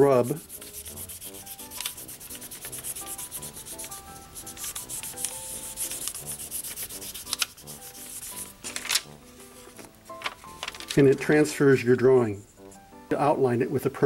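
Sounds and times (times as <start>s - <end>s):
pencil scratching on tracing paper: 0.0s - 8.6s.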